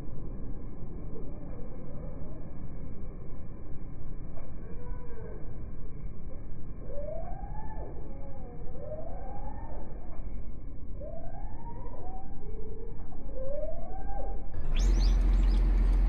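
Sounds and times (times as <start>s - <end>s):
drawn-out rising and falling wails: 4.3s - 16.0s
deep rumble: 14.0s - 16.0s.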